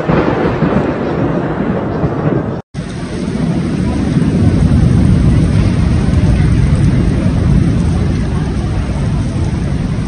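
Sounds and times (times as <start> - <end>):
heavy rain: 0.0 - 10.0
wind rumbling on microphone: 0.0 - 10.0.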